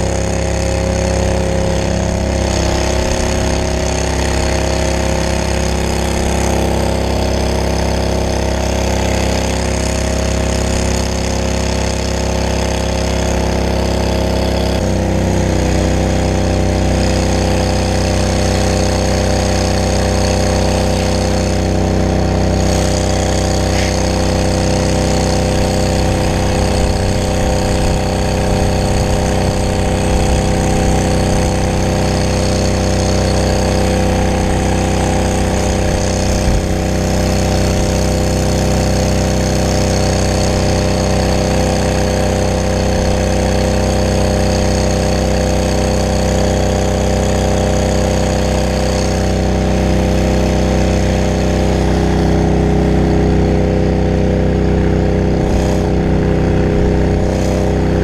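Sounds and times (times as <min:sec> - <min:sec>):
fire truck engine and pump: 0:00.0 - 0:58.0
hose spraying water hiss: 0:22.6 - 0:42.6, 0:55.4 - 0:56.0, 0:56.8 - 0:57.8.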